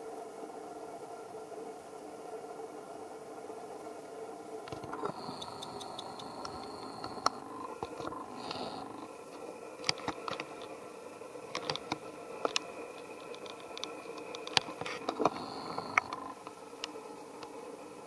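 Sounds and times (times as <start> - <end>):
faint background hum: 0.0 - 18.0
clicks and crackles of climbing: 9.8 - 10.8, 11.5 - 16.4.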